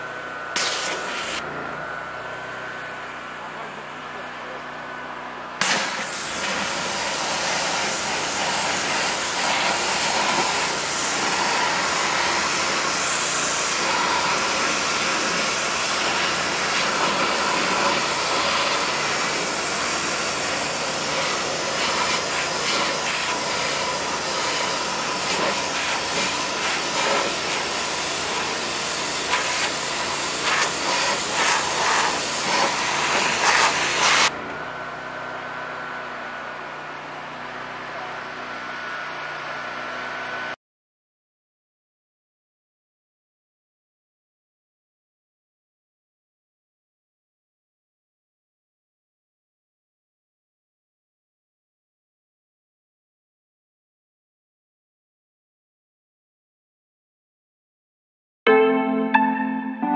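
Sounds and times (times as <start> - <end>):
pressure washer jet hissing: 0.5 - 1.4, 5.6 - 34.3.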